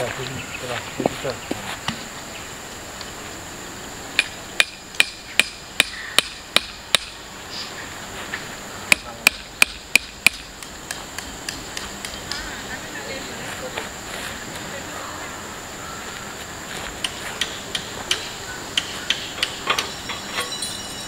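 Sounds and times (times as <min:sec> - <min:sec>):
high insect drone: 0:00.0 - 0:21.0
hammer strikes: 0:04.2 - 0:07.2, 0:08.9 - 0:12.4.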